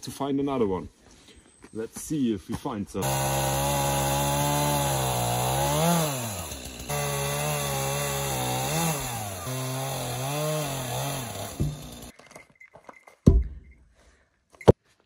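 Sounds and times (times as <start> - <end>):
chainsaw cutting log: 3.0 - 12.1.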